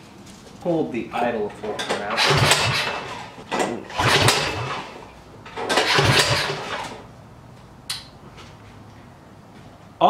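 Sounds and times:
recoil pull-starter whirring: 1.9s - 7.0s
sharp click: 7.9s - 8.2s.

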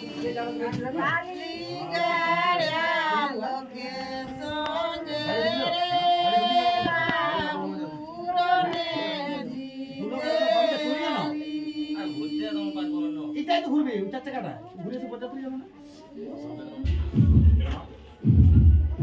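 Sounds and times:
women singing together: 0.0s - 13.4s.

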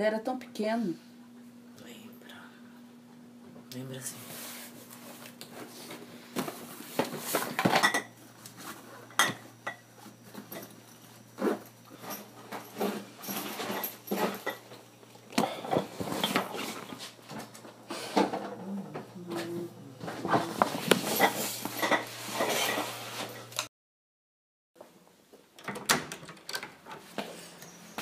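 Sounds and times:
low steady hum: 0.0s - 23.6s
glass bottles clinking: 12.0s - 14.8s, 21.0s - 22.7s.

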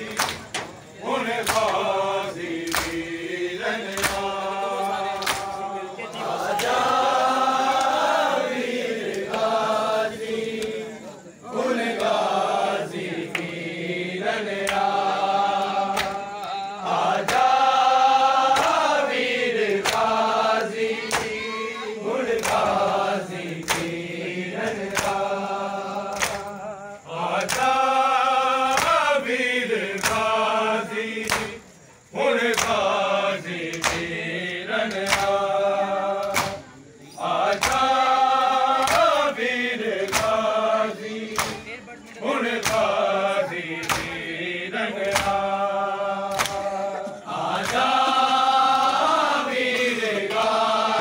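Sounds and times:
men chanting in unison: 0.0s - 51.0s
chest-beating slaps: 0.1s - 1.9s, 2.6s - 3.2s, 3.8s - 4.4s, 5.1s - 5.6s, 15.6s - 16.6s, 19.6s - 21.4s, 23.5s - 24.0s, 26.1s - 26.5s, 31.2s - 31.6s, 33.7s - 34.1s, 34.9s - 35.4s, 36.2s - 36.7s, 37.4s - 37.9s, 40.0s - 40.4s, 41.3s - 41.7s, 42.6s - 43.0s, 43.8s - 44.2s, 45.0s - 45.6s, 46.3s - 46.7s, 47.5s - 48.1s.

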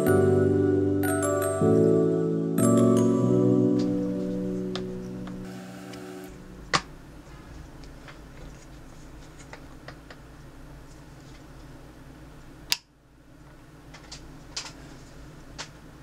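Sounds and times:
low steady hum: 4.0s - 16.0s.

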